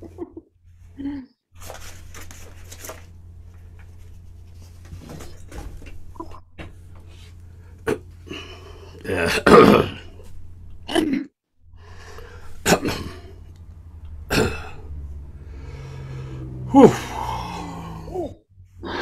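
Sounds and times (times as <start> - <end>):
man coughing: 7.8 - 10.2, 12.6 - 13.5, 14.2 - 14.9.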